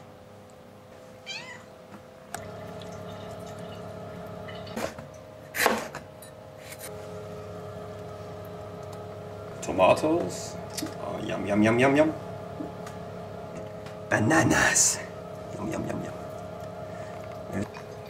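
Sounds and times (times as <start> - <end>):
cat meowing: 1.2 - 1.7
steady hum: 2.0 - 18.0.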